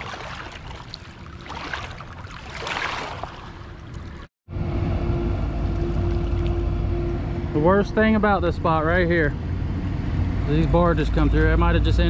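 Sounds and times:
water lapping at rocky bank: 0.0 - 4.3
diesel engine drone: 4.5 - 12.0.

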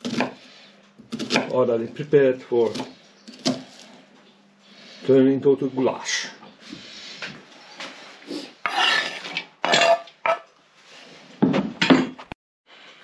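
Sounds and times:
knife on wooden cutting board: 8.6 - 9.4.

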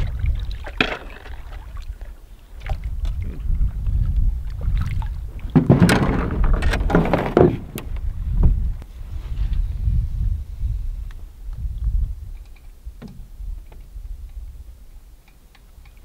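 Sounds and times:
low rumble: 2.7 - 15.0
hull grinding against rock: 3.1 - 9.6
sharp knocks: 5.5 - 7.9.

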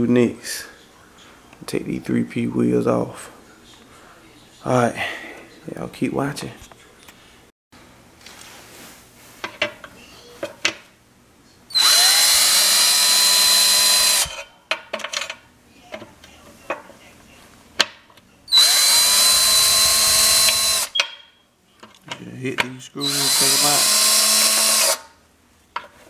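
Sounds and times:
cordless drill whining: 11.7 - 14.4, 18.5 - 21.0, 23.0 - 25.1.

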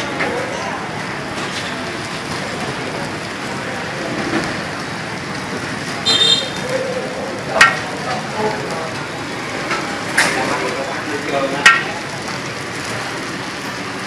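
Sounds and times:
food sizzling in hot oil: 3.4 - 14.0
metal ladle striking wok: 7.5 - 8.1, 11.6 - 12.2.

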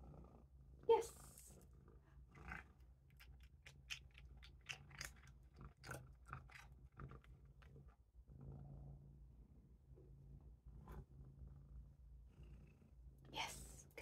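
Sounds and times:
cat crunching a dry treat: 3.2 - 7.3.

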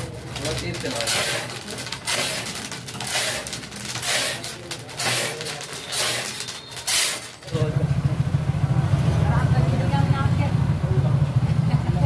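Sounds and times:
scraping and rustling of roasting sand: 0.4 - 7.4.

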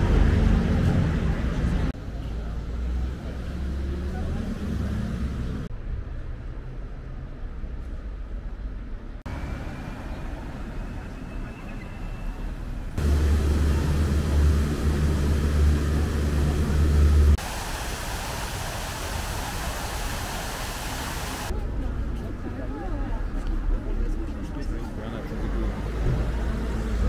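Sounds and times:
vehicle engine low rumble: 0.0 - 17.6
street traffic: 0.0 - 27.0.

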